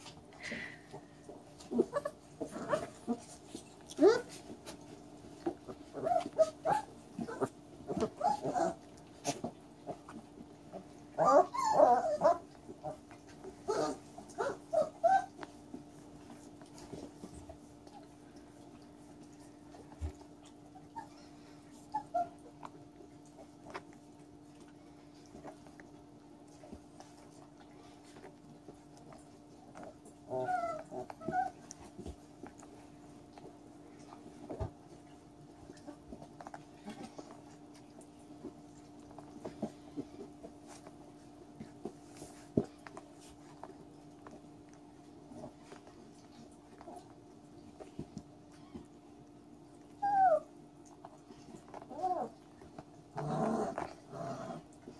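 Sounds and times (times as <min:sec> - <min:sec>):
puppies yelping: 0:01.6 - 0:04.4, 0:05.8 - 0:08.9, 0:10.7 - 0:13.0, 0:13.6 - 0:15.5, 0:21.9 - 0:22.5, 0:30.3 - 0:31.8, 0:50.0 - 0:50.5
puppies whining and yipping: 0:01.6 - 0:09.5, 0:10.2 - 0:18.2, 0:19.2 - 0:23.8, 0:29.7 - 0:32.9, 0:47.8 - 0:49.0, 0:49.8 - 0:50.6, 0:51.3 - 0:52.6.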